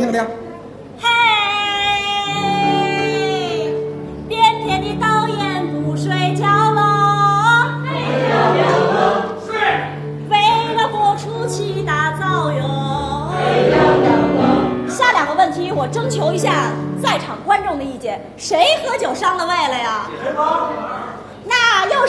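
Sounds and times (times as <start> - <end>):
instrumental backing: 0.6 - 18.4
woman singing: 1.0 - 7.8
choir singing refrain: 7.6 - 9.9, 12.9 - 15.0.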